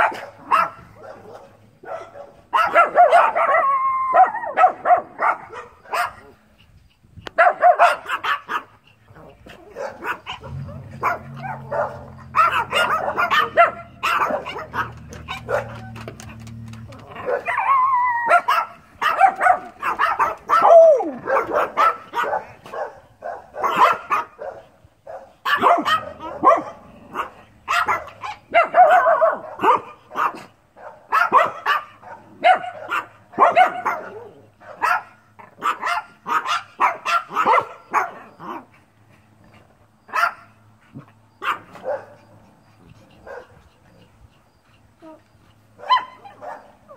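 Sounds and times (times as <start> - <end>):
dogs barking: 0.0 - 6.5, 7.3 - 46.9
low steady hum: 9.2 - 18.1
dog whining: 20.4 - 21.4.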